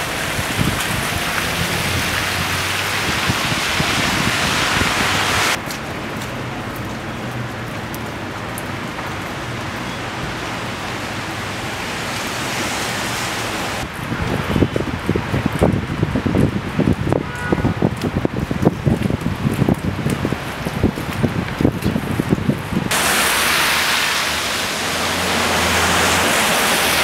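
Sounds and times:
hiss of falling wet snow: 0:00.0 - 0:05.6, 0:11.0 - 0:13.9, 0:22.9 - 0:27.0
low traffic hum: 0:00.0 - 0:27.0.

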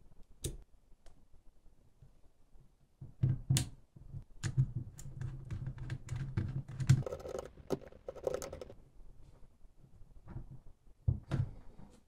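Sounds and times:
scratching and rubbing: 0:07.0 - 0:08.8.

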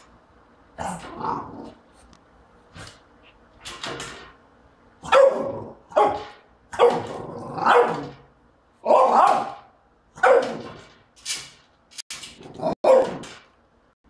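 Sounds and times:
dog barking: 0:05.0 - 0:08.2, 0:08.8 - 0:10.6, 0:12.8 - 0:13.2.

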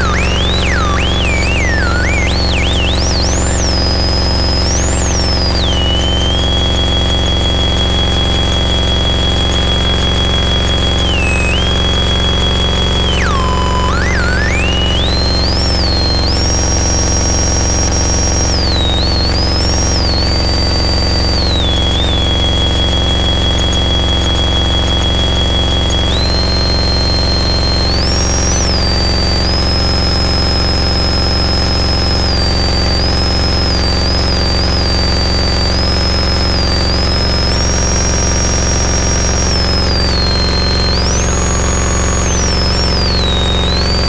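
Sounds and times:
high sliding tone: 0:00.0 - 0:06.3, 0:11.0 - 0:16.5
distorted noise wall: 0:00.0 - 0:44.0.

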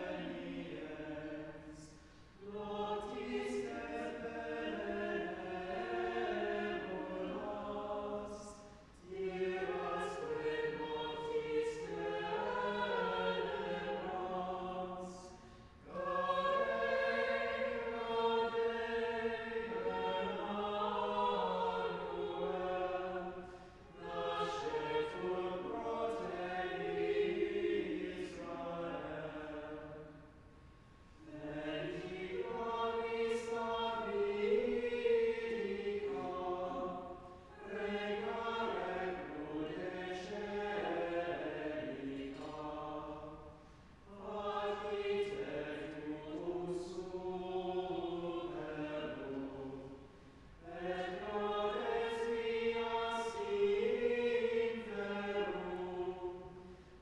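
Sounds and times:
choir singing chant: 0:00.0 - 0:30.3, 0:31.2 - 0:57.0.

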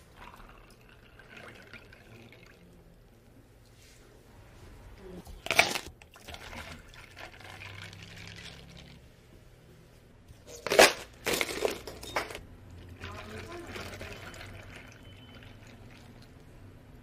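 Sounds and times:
ice cubes clattering into plastic cup: 0:10.6 - 0:12.4.

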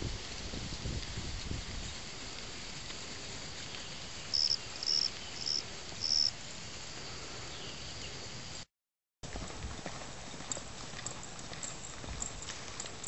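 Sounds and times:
insects droning: 0:01.9 - 0:08.6
short loud insect calls: 0:04.3 - 0:06.3.

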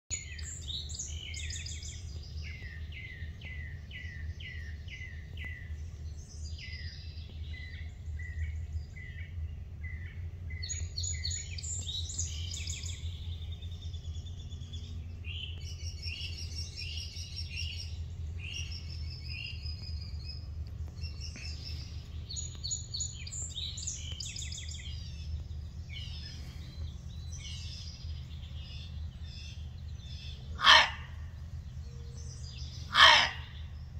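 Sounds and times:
songbirds singing and chirping: 0:00.1 - 0:33.9
steady low rumble: 0:00.1 - 0:33.9.

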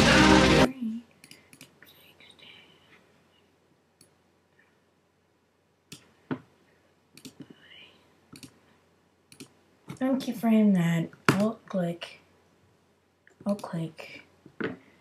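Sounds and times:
mouse and keyboard clicks: 0:07.2 - 0:07.5, 0:08.3 - 0:08.6, 0:09.3 - 0:10.0.

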